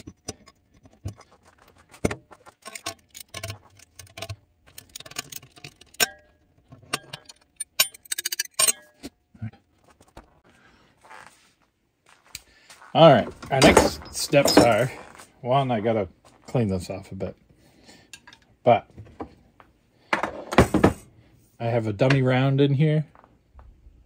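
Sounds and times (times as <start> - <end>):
metal tools clinking on bench: 2.6 - 9.1, 13.5 - 15.0.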